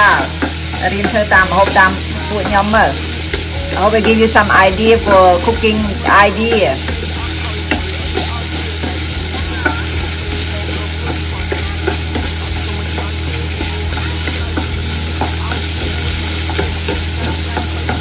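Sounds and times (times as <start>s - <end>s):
carrots sizzling in a frying pan: 0.0s - 18.0s
steady low hum: 0.0s - 18.0s.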